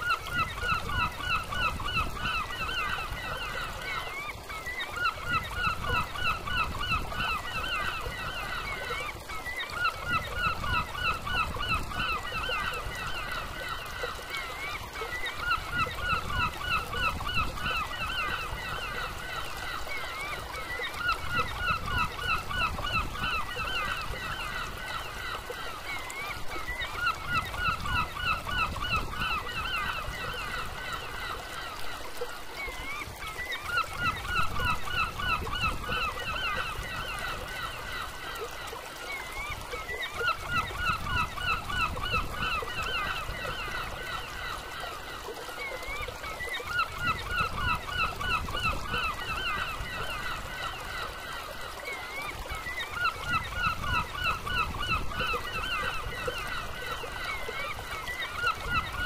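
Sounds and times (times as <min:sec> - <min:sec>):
river pouring over weir steps: 0:00.0 - 0:59.0.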